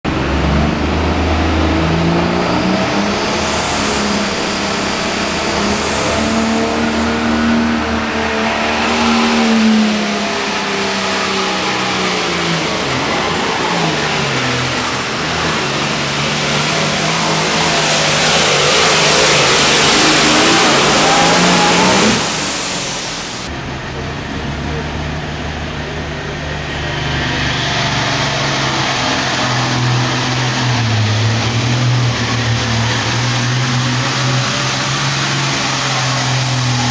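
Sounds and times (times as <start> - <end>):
high engine whine: 0.0 - 36.9
tractor engine running hard: 0.0 - 36.9.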